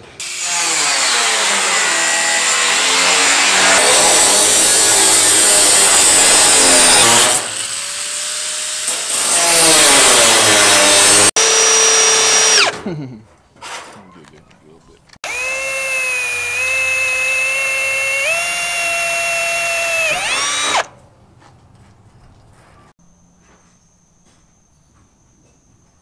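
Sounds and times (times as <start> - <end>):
angle grinder cutting sheet metal: 0.2 - 12.8, 15.2 - 20.9
power tool motor winding down: 9.0 - 12.7, 15.2 - 20.9.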